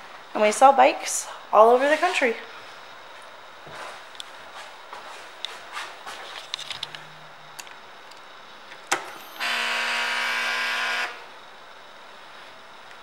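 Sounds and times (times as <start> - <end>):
fuel pump buzzing: 9.0 - 11.2.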